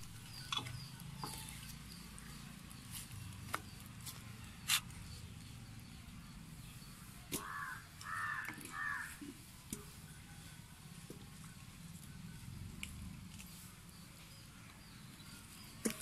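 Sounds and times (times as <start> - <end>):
crow cawing: 7.4 - 9.2.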